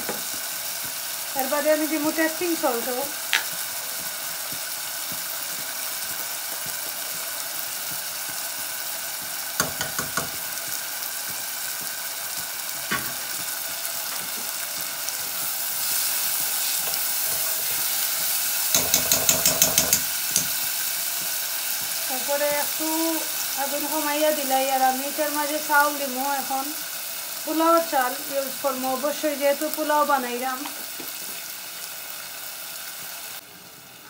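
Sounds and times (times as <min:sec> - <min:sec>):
spices sizzling in a saucepan: 0:00.0 - 0:34.0
metal spoon striking pan: 0:09.6 - 0:10.4, 0:18.7 - 0:20.6.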